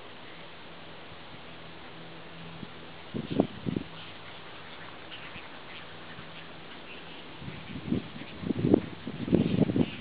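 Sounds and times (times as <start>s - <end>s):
steady outdoor hiss: 0.0s - 10.0s
distant ducks quacking: 2.7s - 10.0s.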